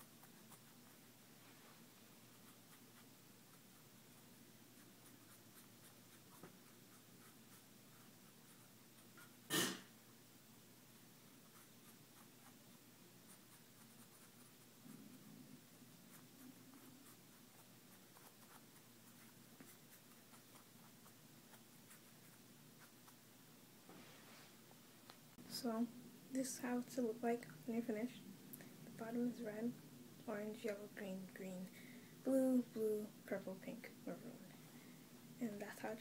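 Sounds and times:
marker scratching on fabric: 4.7s - 9.4s, 11.4s - 15.2s, 16.1s - 23.2s.

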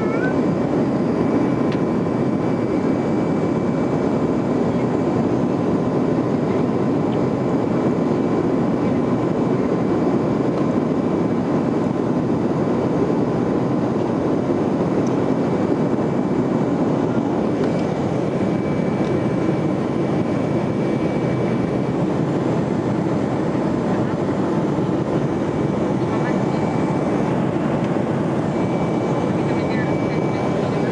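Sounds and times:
jet engine and airflow roar: 0.0s - 30.9s.

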